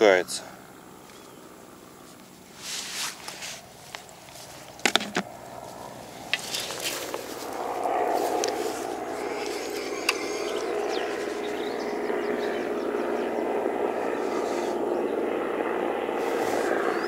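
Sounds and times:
distant engine drone: 0.0 - 17.0
faint bird chirps: 0.6 - 1.7, 9.2 - 15.2.

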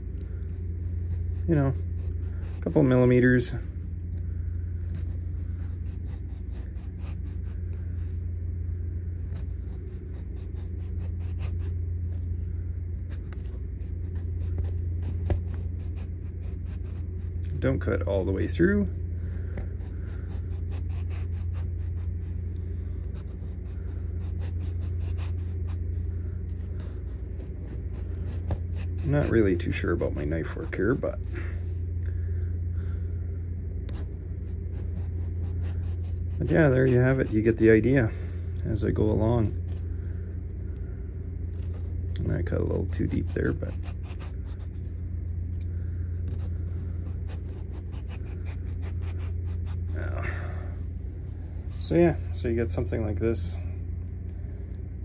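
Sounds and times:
steady low hum: 0.0 - 55.0
knife slicing potato: 42.7 - 44.7.

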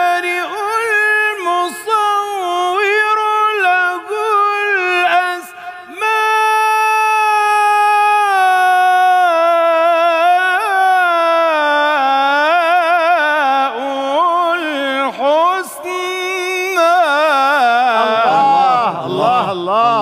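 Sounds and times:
man reciting in melodic chant: 0.0 - 20.0.

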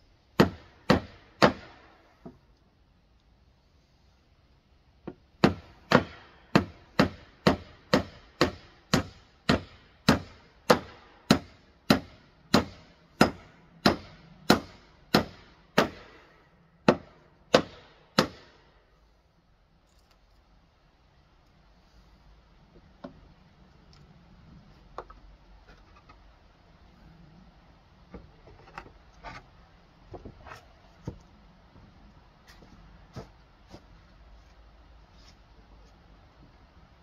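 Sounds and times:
hammer driving nails into wood: 0.4 - 2.4, 5.1 - 18.6.

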